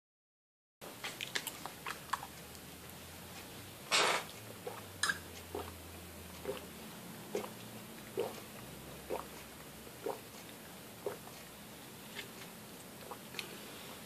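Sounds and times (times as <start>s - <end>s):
cat lapping milk: 4.5s - 11.6s.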